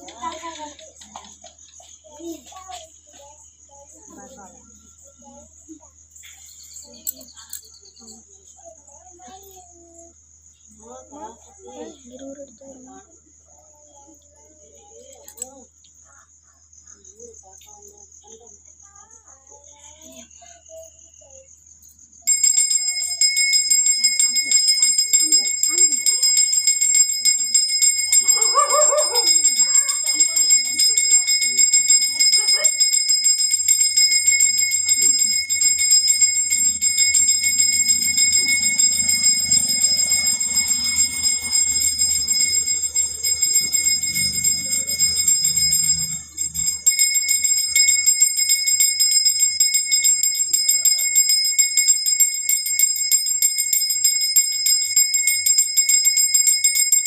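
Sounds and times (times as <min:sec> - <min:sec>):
bell ringing rapidly: 0:22.3 - 0:57.0.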